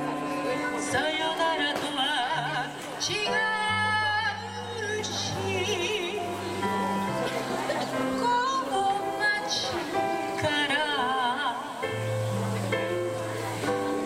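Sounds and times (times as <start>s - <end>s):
woman singing with vibrato: 0.0s - 6.8s, 7.9s - 12.0s
keyboard and guitar accompaniment: 0.0s - 14.0s.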